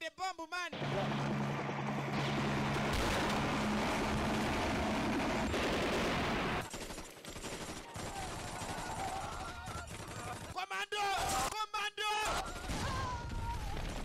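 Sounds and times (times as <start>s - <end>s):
rapid machine-gun fire: 2.2s - 10.6s.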